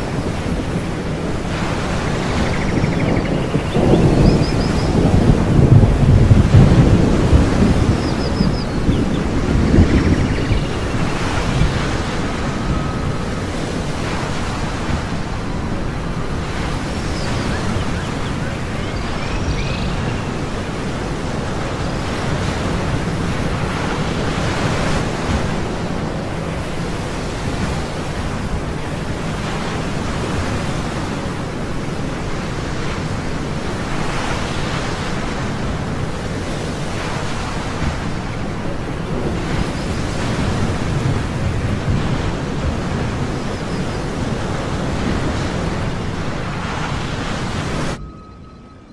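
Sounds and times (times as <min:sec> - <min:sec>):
ocean waves washing: 0:00.0 - 0:48.9
faint high chirps: 0:48.0 - 0:48.9.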